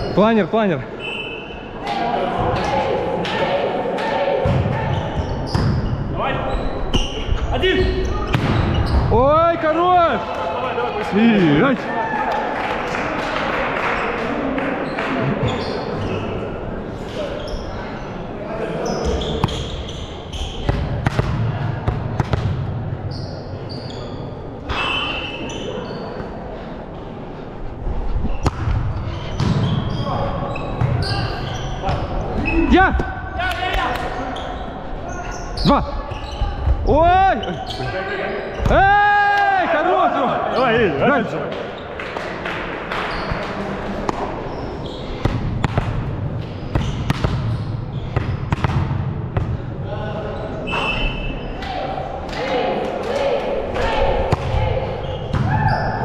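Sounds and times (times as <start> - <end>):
voices echoing in hall: 0.0 - 56.0
sneaker squeaks on floor: 4.8 - 9.1, 14.8 - 16.4, 17.4 - 18.0, 18.8 - 20.9, 23.0 - 26.3, 28.3 - 32.8, 34.1 - 38.8, 43.0 - 43.6, 44.4 - 45.9, 46.6 - 48.5, 50.4 - 51.6
volleyball hits: 8.2 - 9.1, 20.6 - 22.7, 45.2 - 47.6, 48.2 - 49.6, 53.7 - 55.9.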